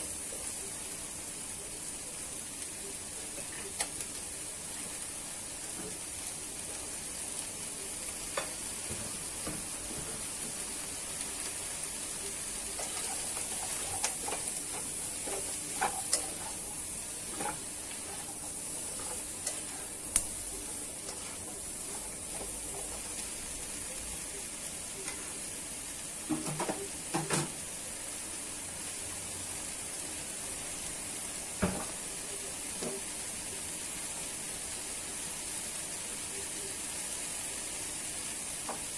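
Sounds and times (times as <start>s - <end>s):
food sizzling in a wok: 0.0s - 38.9s
spatula scraping and knocking pan: 12.8s - 19.8s.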